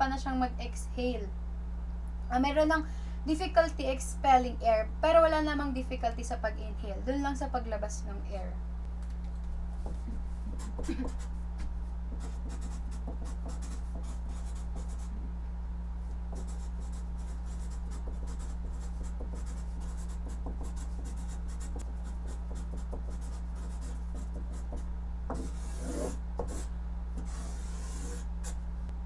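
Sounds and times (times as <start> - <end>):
steady low hum: 0.0 - 29.0
marker pen scratching on paper: 9.8 - 15.1, 16.3 - 28.6.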